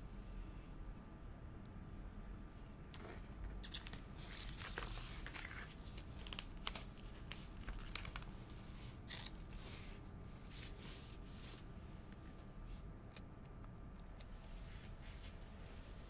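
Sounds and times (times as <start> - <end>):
sticker paper rustling: 3.6 - 9.9.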